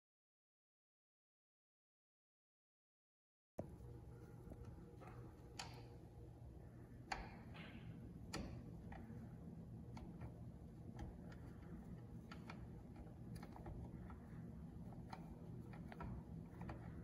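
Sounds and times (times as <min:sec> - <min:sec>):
light clicks and taps: 0:03.6 - 0:06.1, 0:07.0 - 0:17.0
low steady hum: 0:03.6 - 0:17.0.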